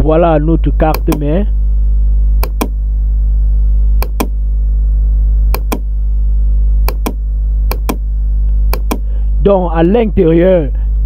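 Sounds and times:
electrical mains hum: 0.0s - 11.0s
sharp clicks in pairs: 0.9s - 1.2s, 2.4s - 2.7s, 4.0s - 4.3s, 5.6s - 5.8s, 6.9s - 8.0s, 8.7s - 9.1s.

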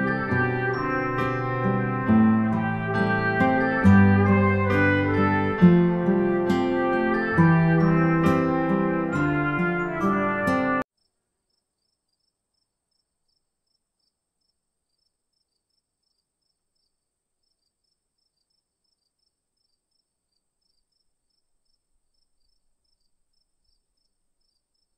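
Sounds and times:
crickets trilling: 11.0s - 24.9s
insect chirps: 11.0s - 24.9s.

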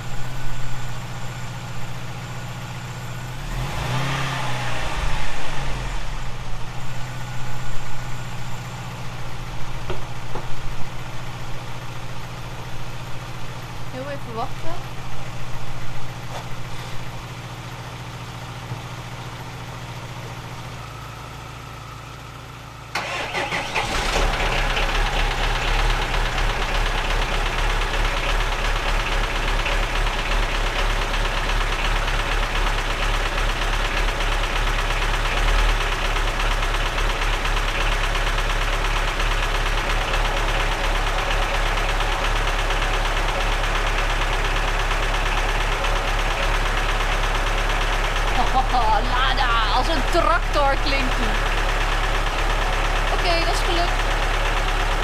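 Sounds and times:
car engine idling quietly: 0.0s - 3.7s, 4.7s - 55.0s
car engine cranking and starting: 0.0s - 55.0s
rough misfiring engine idle: 0.0s - 55.0s.

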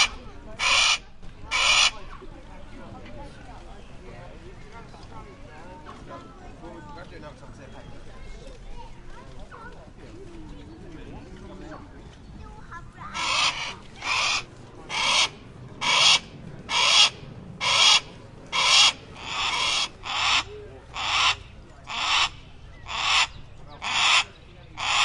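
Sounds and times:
hawk screeching call: 13.2s - 25.0s.

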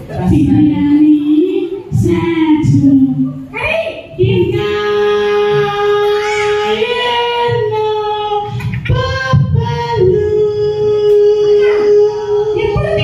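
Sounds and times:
child singing: 4.2s - 13.0s.

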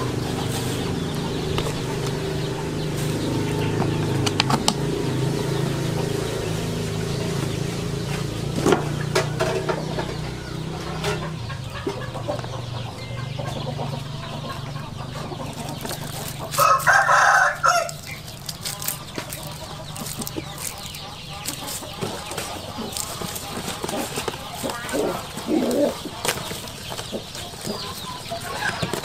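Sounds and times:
rooster crowing: 16.5s - 18.1s.

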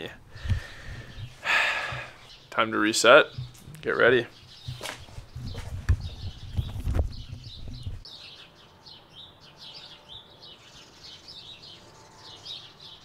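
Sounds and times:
small birds chirping: 0.0s - 13.0s
dull thumps: 0.4s - 2.2s, 3.3s - 8.0s.

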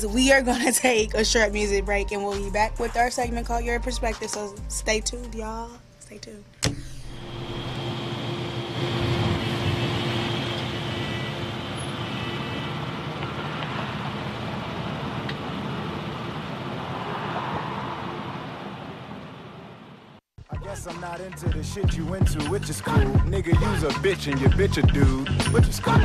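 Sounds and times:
steady rushing noise: 7.2s - 20.2s.

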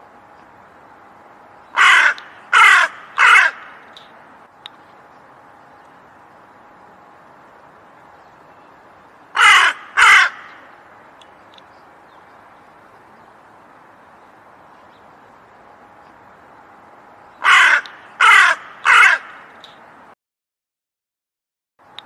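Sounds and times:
faint steady hiss: 0.0s - 20.2s
crow cawing: 1.8s - 3.9s, 9.3s - 10.7s, 17.4s - 19.5s.

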